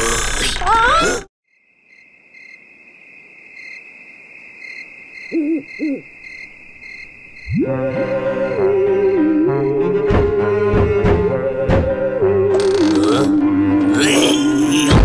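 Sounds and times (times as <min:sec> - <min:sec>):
crickets chirping: 0:01.5 - 0:10.0
owl hooting: 0:05.2 - 0:06.1
music: 0:07.5 - 0:15.0.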